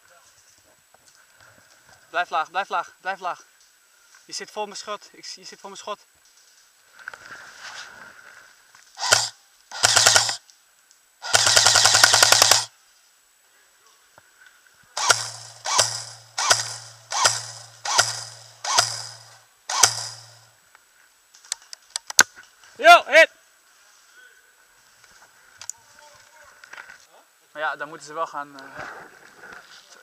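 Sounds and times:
airsoft rifle firing bursts: 0:09.0 - 0:10.4, 0:11.2 - 0:12.7, 0:15.0 - 0:20.5.

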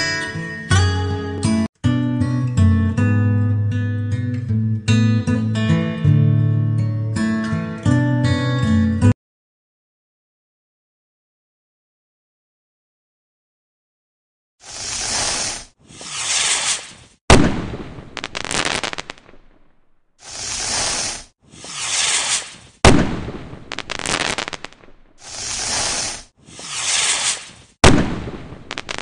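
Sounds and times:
rockets rushing hiss: 0:14.6 - 0:19.4, 0:20.2 - 0:29.0
firework crackle: 0:14.6 - 0:29.0
firework bang: 0:16.2 - 0:19.7, 0:21.8 - 0:26.2, 0:26.8 - 0:29.0.

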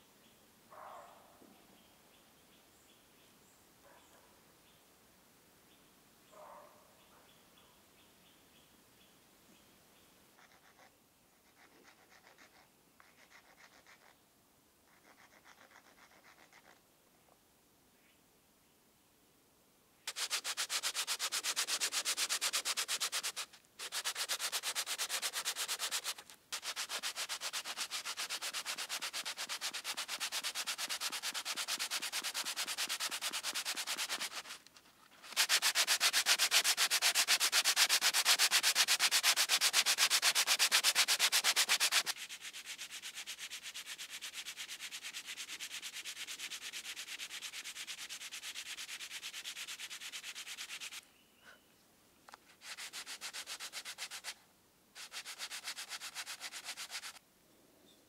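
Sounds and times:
sanding metal blade: 0:20.1 - 0:34.6, 0:35.2 - 0:51.0, 0:52.6 - 0:54.4, 0:55.0 - 0:57.2.

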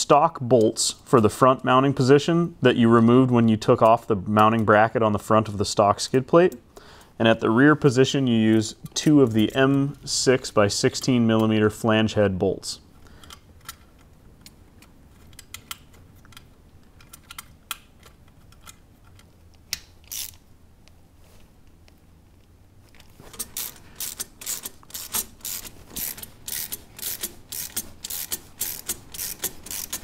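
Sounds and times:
ratchet driver clicking: 0:19.7 - 0:20.4, 0:23.3 - 0:30.0.

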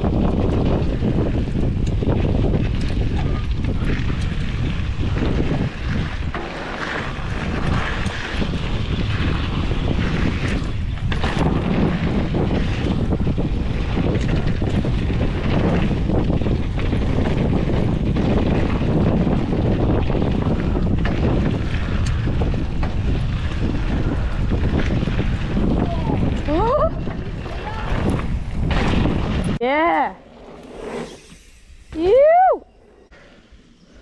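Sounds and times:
small bike rattles: 0:00.0 - 0:30.1
bike tyre noise on dirt: 0:00.0 - 0:34.0
wind buffeting microphone: 0:00.0 - 0:34.0.

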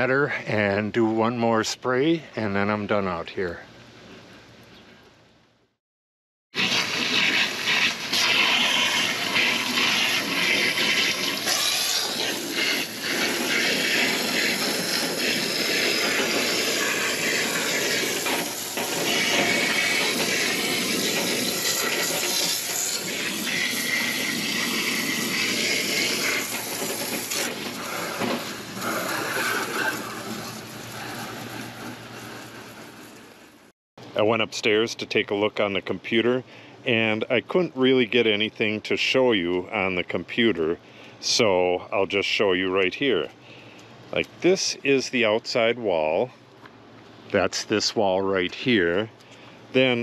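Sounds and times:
faint outdoor background noise: 0:00.0 - 0:05.8, 0:27.6 - 0:50.0
hose spraying water: 0:06.6 - 0:33.5.

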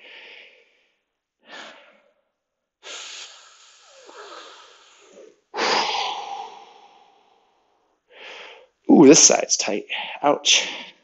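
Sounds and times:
man breathing heavily: 0:00.0 - 0:02.2, 0:02.8 - 0:08.8
forceful breath out: 0:02.8 - 0:08.8.

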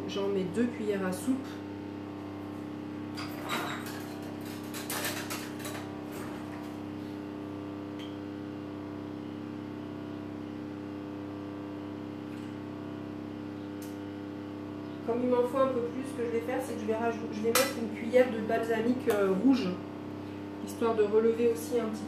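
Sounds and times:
cutlery clattering: 0:03.2 - 0:06.4.

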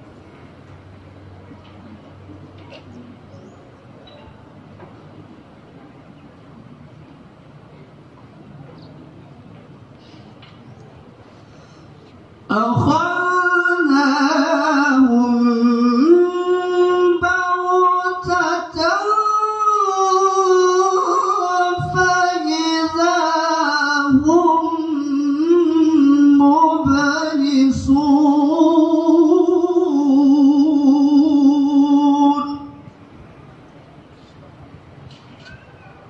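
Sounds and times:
man chanting melodically: 0:12.4 - 0:32.9.

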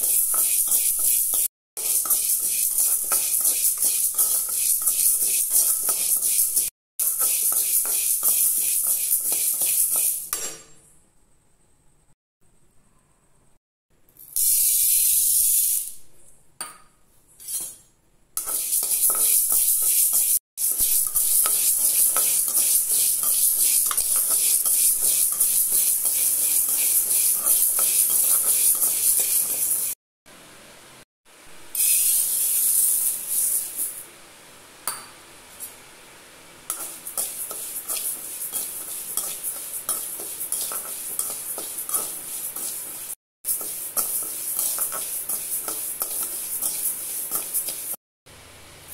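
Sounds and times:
metal spatula scraping dry lentils: 0:00.0 - 0:10.3, 0:17.4 - 0:17.7, 0:18.4 - 0:30.0, 0:36.7 - 0:48.0.

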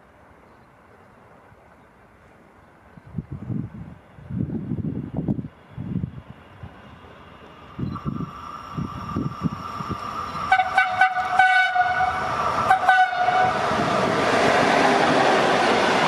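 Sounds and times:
train rumble: 0:02.2 - 0:16.0
locomotive horn blasts: 0:10.5 - 0:13.6.

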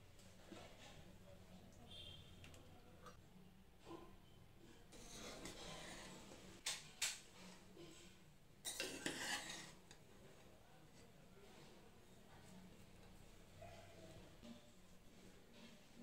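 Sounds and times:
spoon scraping pot: 0:04.9 - 0:06.4, 0:08.7 - 0:10.0.

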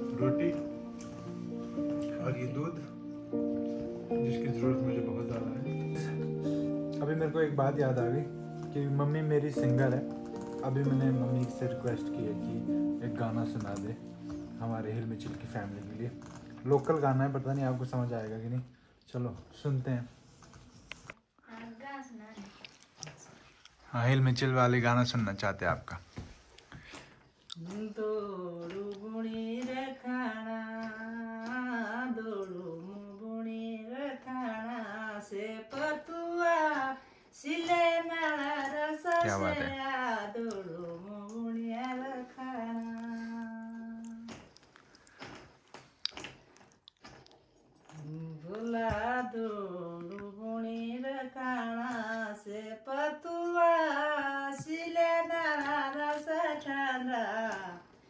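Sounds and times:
woman singing unaccompanied: 0:27.5 - 0:44.6, 0:47.9 - 0:58.0.

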